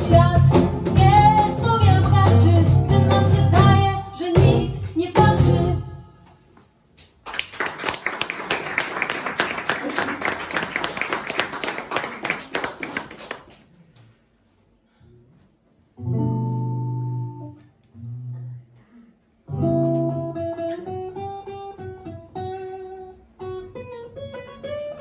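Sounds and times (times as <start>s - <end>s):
acoustic guitar playing: 0.0s - 6.2s, 16.0s - 18.7s, 19.5s - 25.0s
applause: 7.2s - 13.8s.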